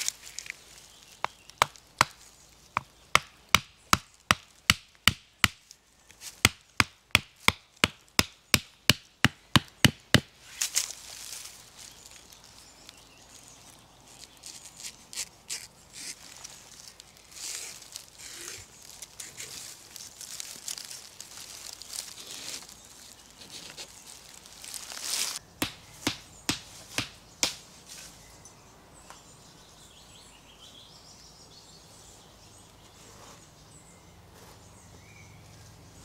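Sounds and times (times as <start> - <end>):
rustling in grass: 0.0 - 1.6, 10.4 - 27.1, 34.3 - 36.0.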